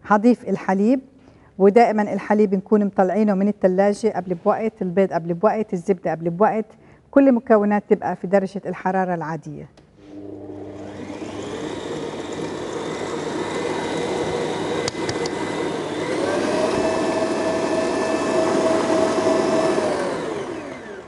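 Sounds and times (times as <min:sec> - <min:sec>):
stand mixer motor whine: 0:10.1 - 0:21.0.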